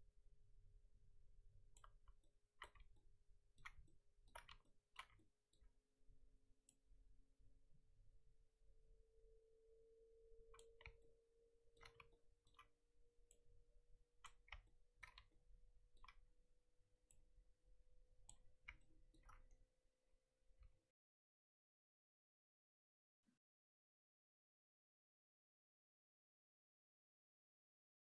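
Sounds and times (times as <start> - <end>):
mouse and keyboard clicks: 1.8 - 3.0, 3.6 - 5.3, 10.6 - 11.1, 11.8 - 12.7, 14.2 - 15.4, 16.0 - 16.2, 18.3 - 19.6.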